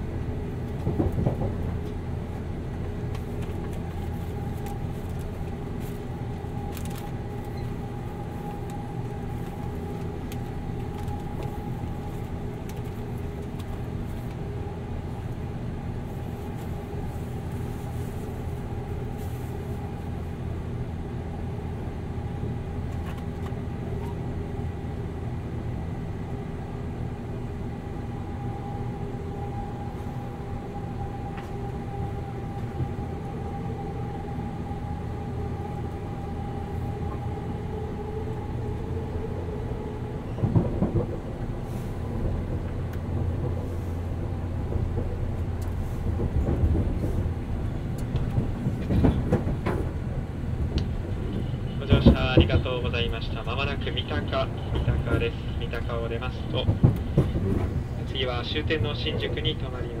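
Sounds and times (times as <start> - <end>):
train clatter: 0.0 - 14.5, 35.9 - 60.0
train motors humming: 0.0 - 60.0
wheel and track rumble: 0.0 - 60.0.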